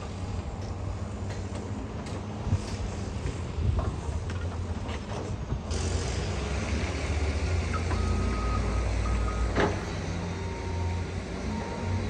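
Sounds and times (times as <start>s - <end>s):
excavator engines rumbling: 0.0s - 12.0s
back-up alarm beeping: 7.7s - 9.6s, 10.2s - 12.0s.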